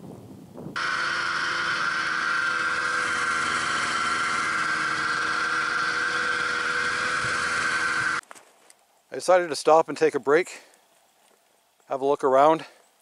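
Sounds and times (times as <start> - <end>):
snowmobile engine with high whine: 0.7 - 8.2.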